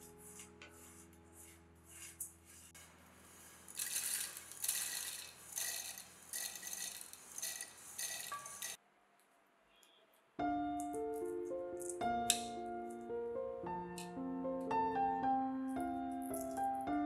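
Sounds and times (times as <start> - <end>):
oats stirred in a metal pan: 0.0 - 8.8
grains rattling into plastic bowl: 3.2 - 8.8.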